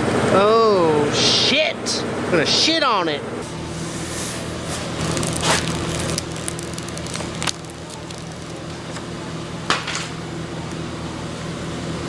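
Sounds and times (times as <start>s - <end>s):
decal backing crinkling as peeled: 4.6s - 9.1s.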